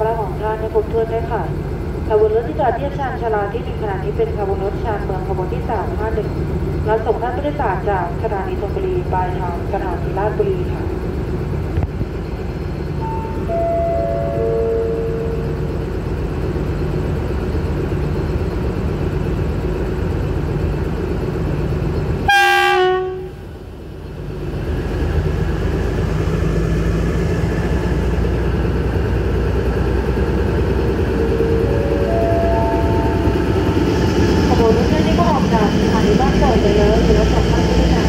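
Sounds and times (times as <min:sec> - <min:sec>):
diesel locomotive engine idling: 0:00.0 - 0:38.0
train horn blast: 0:22.2 - 0:23.4.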